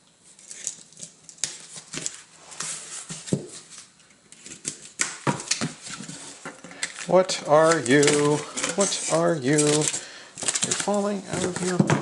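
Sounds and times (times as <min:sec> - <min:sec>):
cardboard scraping and rubbing: 0:07.1 - 0:09.9.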